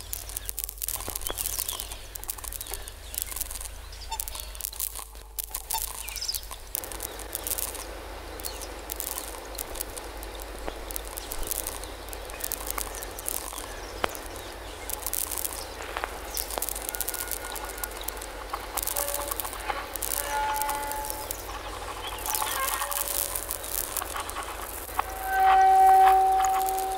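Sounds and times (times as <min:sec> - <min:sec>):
dense crackling hiss: 0:00.0 - 0:26.9
sharp clicks: 0:00.0 - 0:26.9
thin tones: 0:00.0 - 0:26.9
steady low hum: 0:06.6 - 0:26.9.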